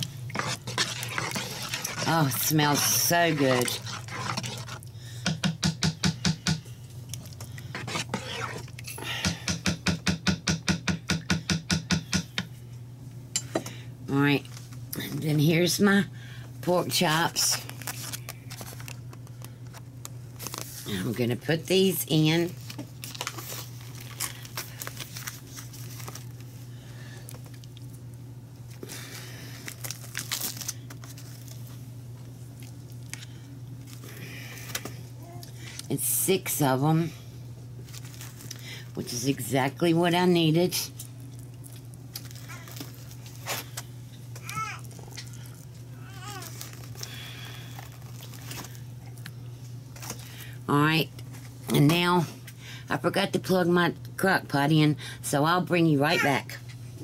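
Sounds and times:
spoon stirring thick mixture: 0.0 - 6.4, 7.1 - 8.8
low steady hum: 0.0 - 57.0
plastic packaging crinkling: 17.5 - 20.9, 22.5 - 26.6, 28.7 - 31.8, 37.8 - 38.6, 41.3 - 43.8, 44.4 - 48.9.

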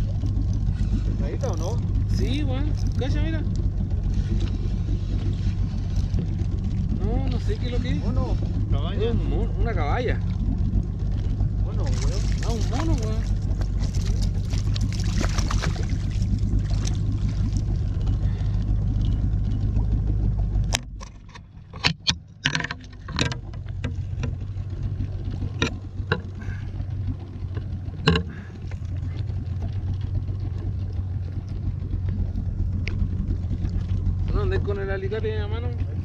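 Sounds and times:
outboard motor humming: 0.0 - 36.0
knocks and clicks handling fish: 18.0 - 26.4, 27.4 - 28.9.

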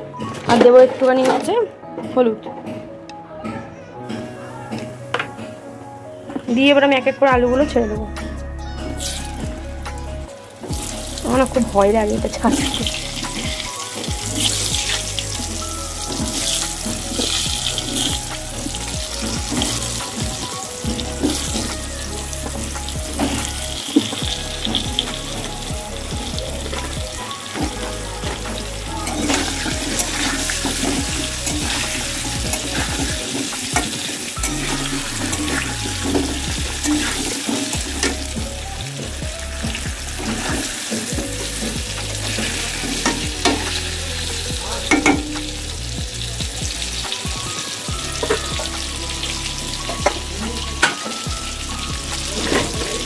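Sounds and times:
potatoes sizzling in oil: 9.0 - 53.0.

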